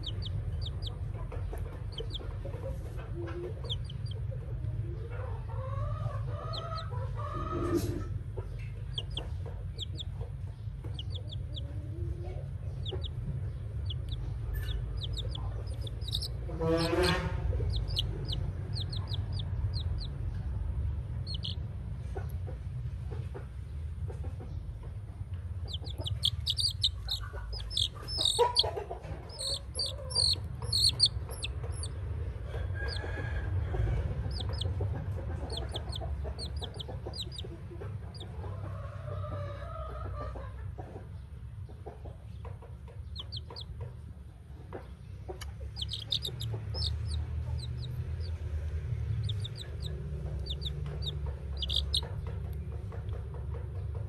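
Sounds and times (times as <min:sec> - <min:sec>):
baby chick peeping: 0:00.0 - 0:54.0.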